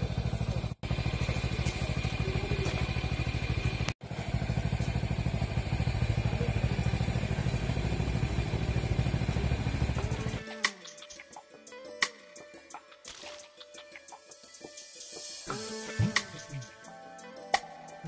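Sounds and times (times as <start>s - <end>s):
motorcycle engine idling: 0.0s - 10.4s.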